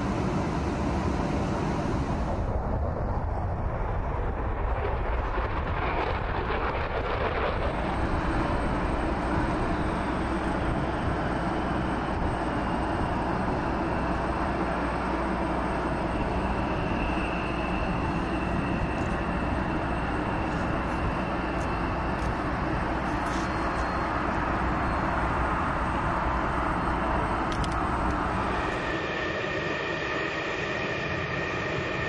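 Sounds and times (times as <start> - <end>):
jet engine roar with high whine: 0.0 - 32.0
jets taxiing with whining tones: 0.0 - 32.0.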